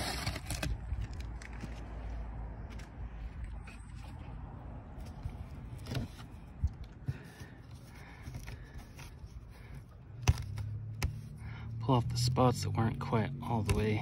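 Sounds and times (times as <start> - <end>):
hand smoothing canvas: 7.1 - 11.4.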